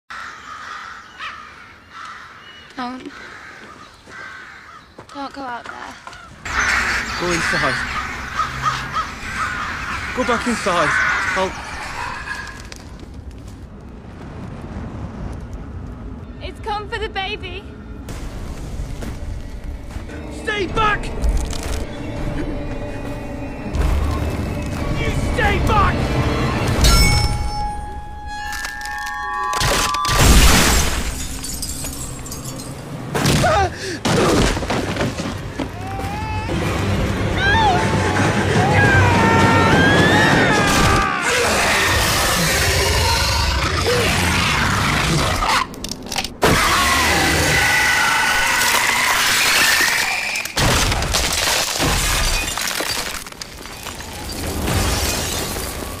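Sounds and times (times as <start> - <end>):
film score music: 0.5 - 30.4, 32.6 - 49.2
ice crackling and splintering: 21.2 - 21.9, 48.2 - 56.0
high ringing tones: 26.8 - 30.4.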